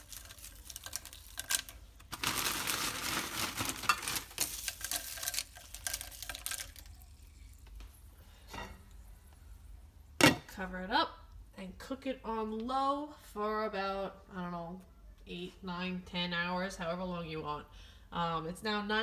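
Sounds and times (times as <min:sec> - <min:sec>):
frozen beans rustling and clicking: 0:00.0 - 0:07.9.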